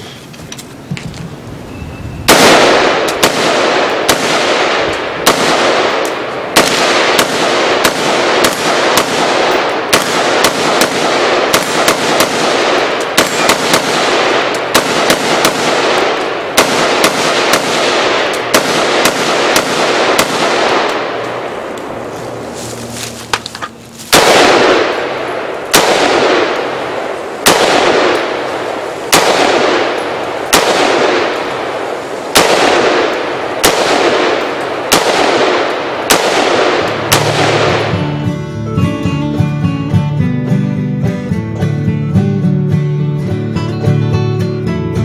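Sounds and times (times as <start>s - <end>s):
rifle shots echoing: 2.3s - 22.7s, 23.4s - 38.4s.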